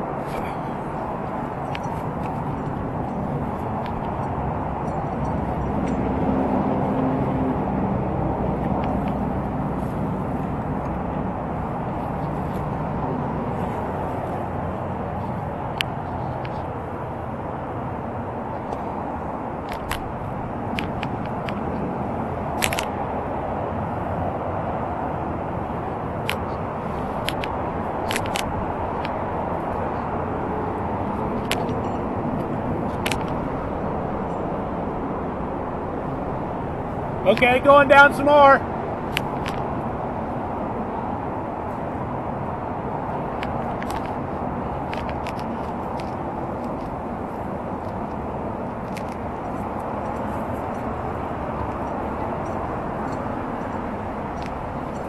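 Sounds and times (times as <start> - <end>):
low outdoor rumble: 0.0 - 55.0
steady rustling rush: 0.0 - 55.0
climbing hardware clicks: 22.5 - 23.0, 26.2 - 30.1, 30.8 - 33.7, 43.2 - 44.2.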